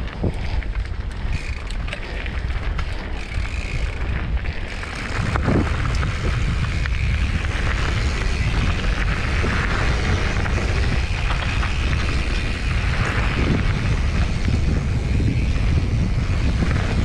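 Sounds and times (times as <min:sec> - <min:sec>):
bike tyres rolling on gravel: 0:00.0 - 0:17.0
wind buffeting microphone: 0:00.0 - 0:17.0.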